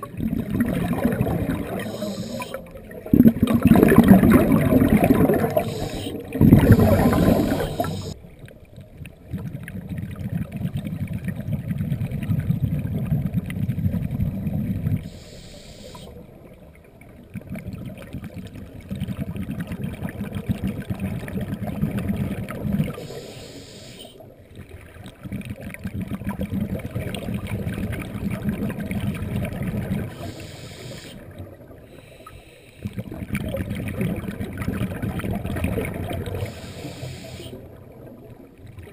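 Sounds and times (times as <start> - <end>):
bubbling exhalations: 0.0 - 8.2
diver breathing through regulator: 1.6 - 2.7, 5.4 - 8.2, 15.0 - 16.2, 23.0 - 24.2, 30.1 - 31.2, 36.4 - 37.6.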